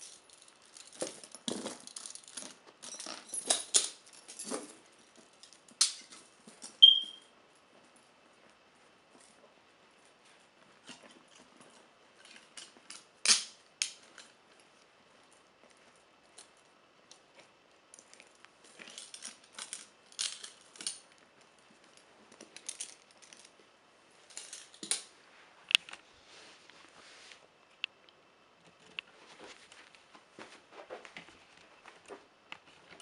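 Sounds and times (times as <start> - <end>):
metal chains clinking and rattling: 0.0 - 7.2, 18.7 - 21.1, 22.6 - 23.5, 24.3 - 25.1.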